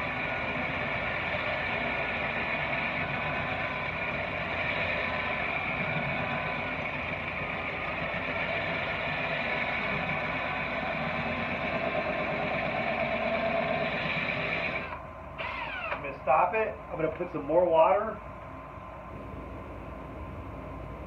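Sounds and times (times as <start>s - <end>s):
drill grinding through glass: 12.9s - 16.1s.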